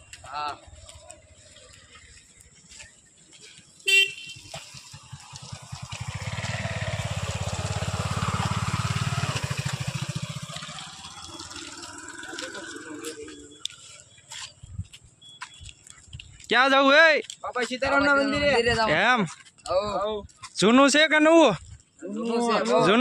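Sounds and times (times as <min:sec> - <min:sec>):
horn beep: 0:03.8 - 0:04.7
motorcycle engine passing: 0:03.9 - 0:14.2.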